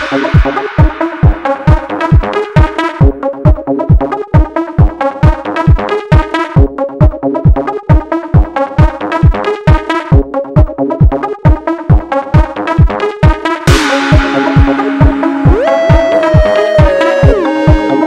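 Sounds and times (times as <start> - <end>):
electronic dance music: 0.0 - 18.0
kick drum: 0.0 - 18.0
repeating synth notes: 0.0 - 18.0.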